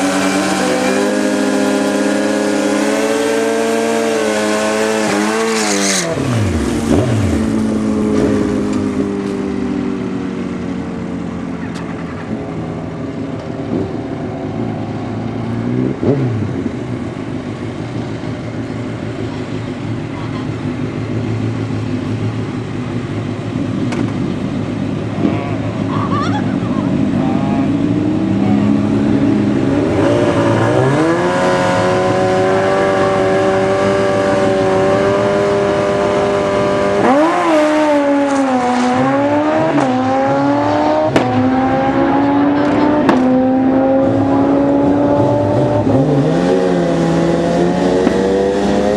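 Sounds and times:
motorcycle engine revving: 0.0s - 10.1s, 26.9s - 48.9s.

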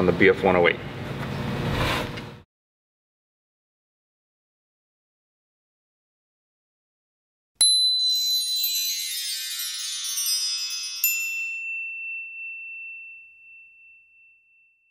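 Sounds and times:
sparkling chime sound effect: 7.6s - 14.9s.

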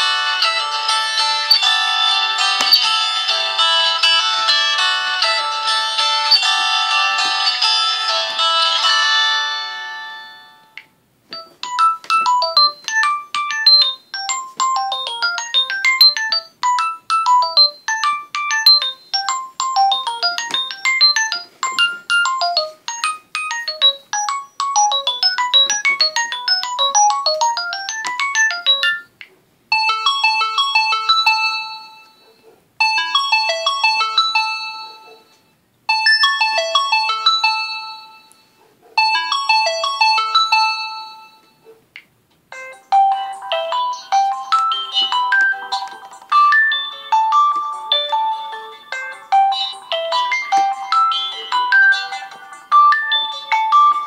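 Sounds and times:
phone ringtone fast melody: 0.0s - 10.8s, 11.4s - 29.1s, 29.7s - 32.2s, 32.8s - 35.2s, 35.9s - 38.3s, 39.0s - 41.5s, 42.5s - 54.0s
phone ringtone repeating phrase: 11.4s - 29.1s, 42.6s - 54.0s.

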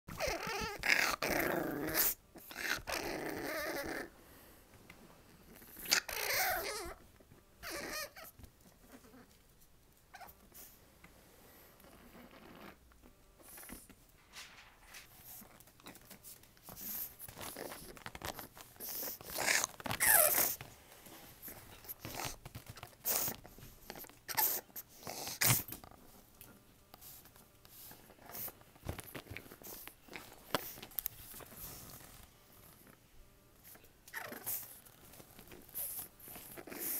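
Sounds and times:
puppy vocalising: 0.1s - 4.1s, 5.6s - 7.0s, 7.6s - 9.3s, 18.8s - 20.6s, 34.1s - 34.8s
rustling: 13.4s - 24.4s.

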